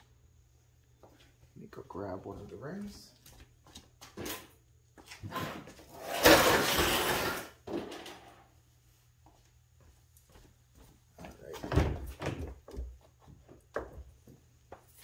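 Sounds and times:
footsteps on concrete floor: 0.8 - 5.9, 8.9 - 15.0.

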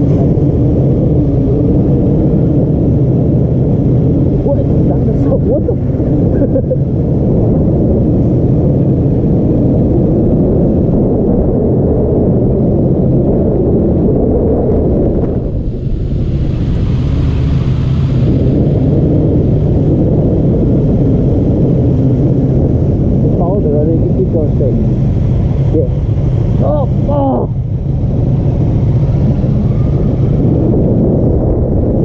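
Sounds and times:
motorcycle engine rumble: 0.0 - 32.0
wind noise on microphone: 0.0 - 32.0.

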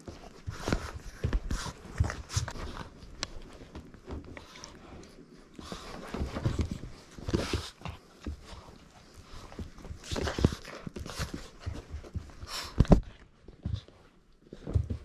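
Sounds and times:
dog paws scrabbling and thumping: 0.0 - 15.0.

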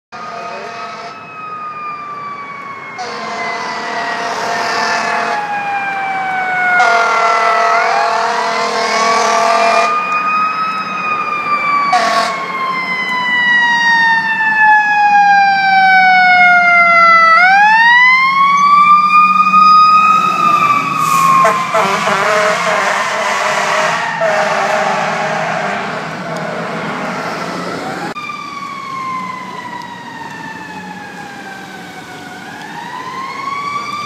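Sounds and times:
air horn blasts: 0.1 - 1.2, 3.0 - 5.4, 6.8 - 10.0, 11.9 - 12.5, 21.0 - 27.2
siren wailing: 0.2 - 34.0.

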